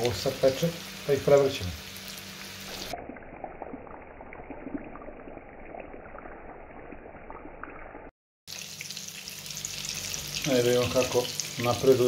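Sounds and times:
meatballs sizzling in oil: 0.0 - 3.0, 8.0 - 12.0.

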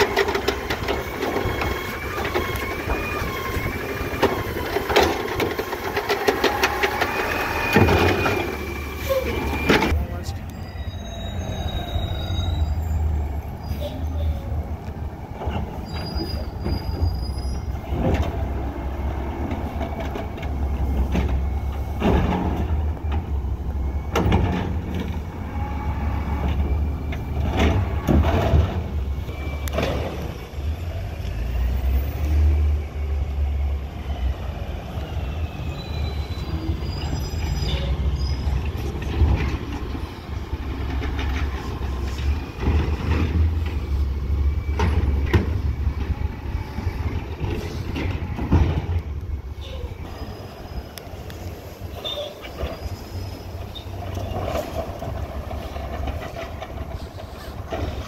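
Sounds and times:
high metallic squeals: 0.8 - 14.0, 15.7 - 17.8, 35.1 - 38.9, 49.5 - 54.7.

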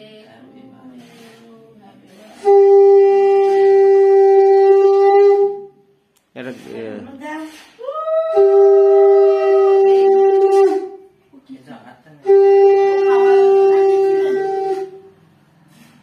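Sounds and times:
conch shell blasts: 2.3 - 5.9, 7.6 - 11.2, 12.2 - 15.3.

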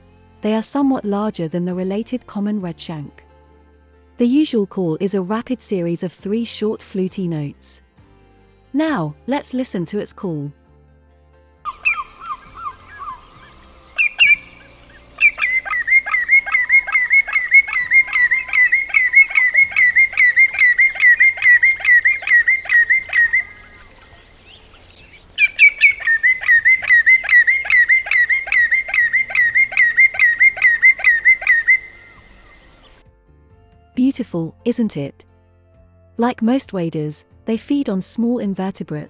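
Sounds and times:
greenshank calling: 11.7 - 33.0.

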